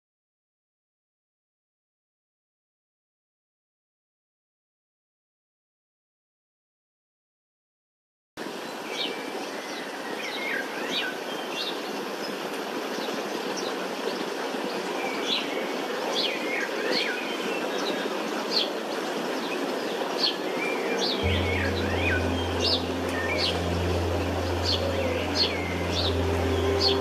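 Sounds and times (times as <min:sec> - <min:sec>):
outdoor background noise: 0:08.4 - 0:27.0
birds chirping: 0:20.6 - 0:27.0.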